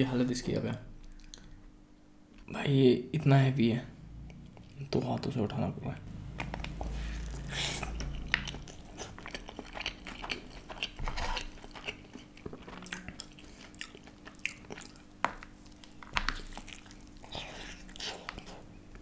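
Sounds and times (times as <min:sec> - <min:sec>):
person chewing food: 0:01.0 - 0:01.6, 0:04.2 - 0:04.9, 0:06.2 - 0:19.0.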